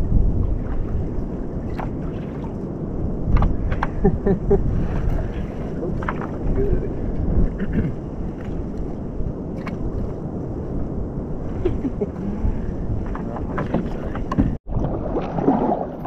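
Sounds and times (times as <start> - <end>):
wind rumbling on microphone: 0.0 - 16.0
water sloshing against kayak hull: 0.2 - 4.0, 4.6 - 7.6, 13.0 - 16.0.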